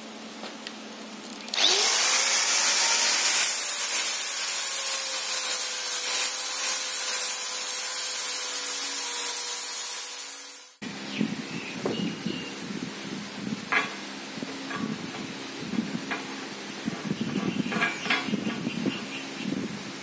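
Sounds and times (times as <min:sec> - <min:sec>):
angle grinder grinding metal: 0:01.5 - 0:10.8.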